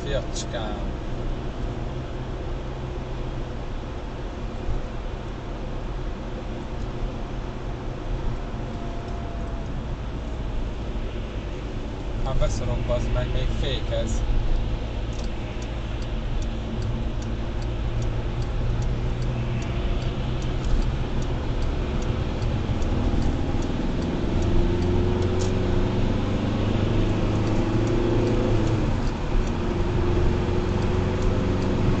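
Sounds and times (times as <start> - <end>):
car engine and road noise: 0.0 - 32.0
faint even ticking: 12.4 - 26.1.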